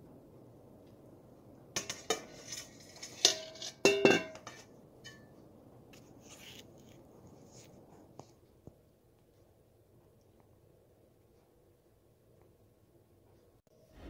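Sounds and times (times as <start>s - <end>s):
metal kitchenware clinking: 1.8s - 5.3s.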